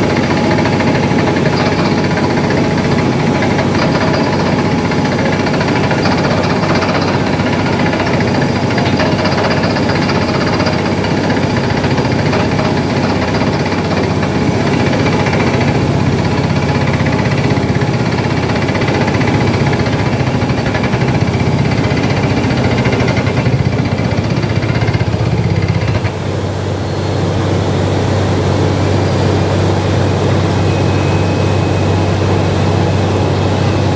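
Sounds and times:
drilling rig rattling: 0.0 - 26.2.

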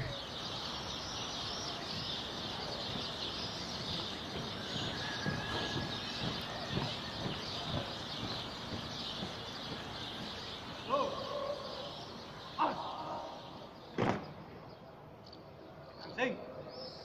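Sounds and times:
low outdoor background: 0.0 - 17.0
small birds chirping: 0.0 - 17.0
soft low thumps: 1.9 - 11.0.

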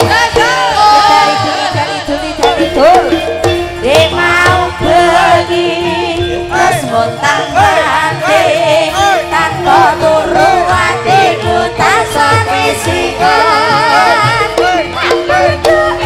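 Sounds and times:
gamelan ensemble playing: 0.0 - 16.0
woman singing ornamented vocals: 0.0 - 16.0.

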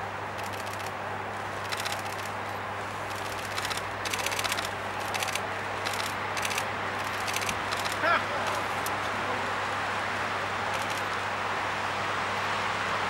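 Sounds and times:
camera shutters clicking: 1.6 - 2.3, 3.1 - 9.0, 10.8 - 11.0.

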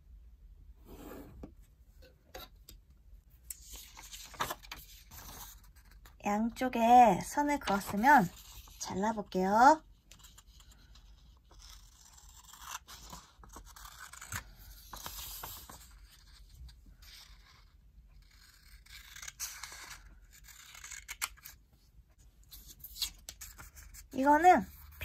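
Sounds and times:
scissors cutting paper: 18.4 - 21.6.

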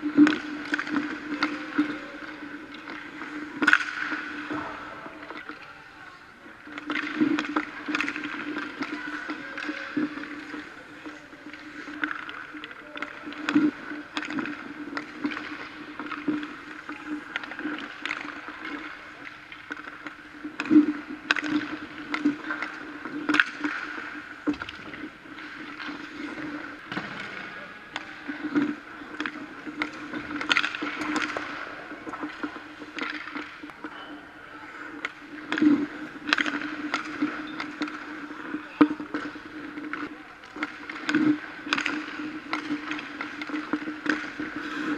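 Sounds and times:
skate blades scraping ice: 0.0 - 5.6, 6.6 - 44.9
sticks and pucks clacking: 0.0 - 44.9.

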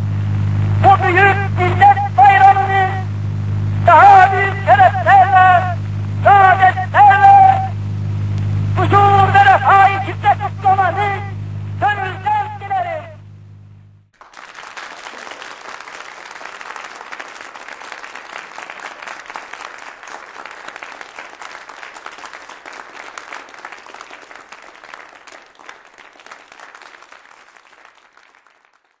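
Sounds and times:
crowd applauding: 14.1 - 29.0.

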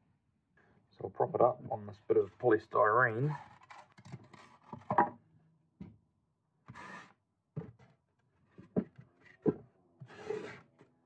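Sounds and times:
short rubbing scrape: 6.7 - 7.1, 10.1 - 10.8.

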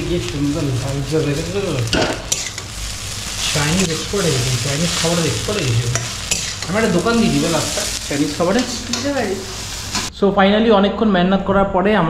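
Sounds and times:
noodles sizzling in a wok: 0.0 - 10.1
metal spatula scraping pan: 2.0 - 2.8, 5.8 - 10.1.

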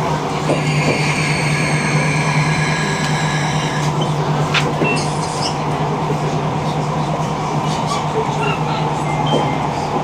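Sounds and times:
train hum and rolling noise: 0.0 - 10.0
high-pitched whine: 0.5 - 4.0.

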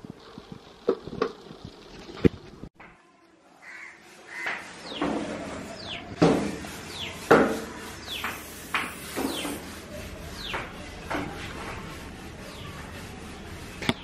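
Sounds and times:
crows cawing: 3.6 - 4.6.

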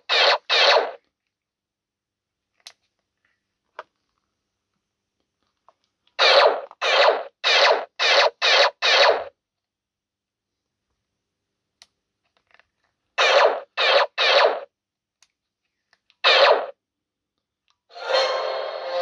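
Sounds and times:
electronic blaster shots: 0.0 - 1.0, 6.2 - 9.3, 13.2 - 14.7, 16.2 - 16.7.

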